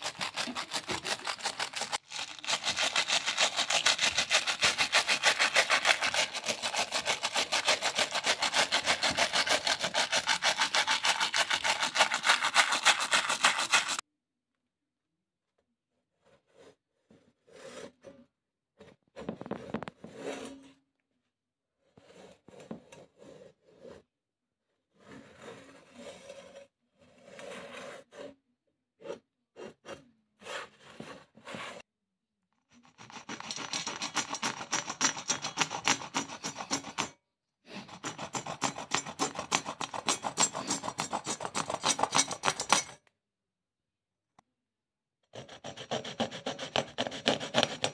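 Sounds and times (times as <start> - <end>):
hand saw rasping on canvas shoe: 0.0 - 14.0, 32.8 - 37.1, 37.7 - 42.9, 45.3 - 47.9.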